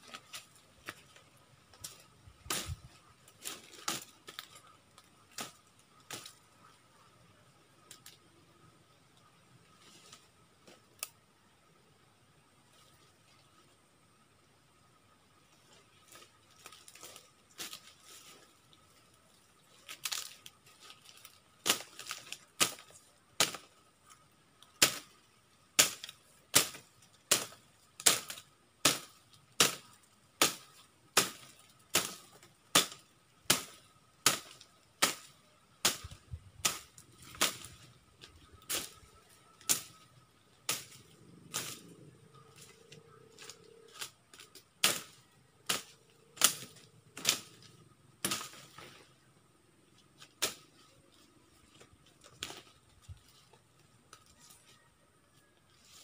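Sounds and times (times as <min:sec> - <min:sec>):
sharp chopping strikes: 0:25.8 - 0:32.2, 0:32.8 - 0:37.7, 0:44.8 - 0:47.6.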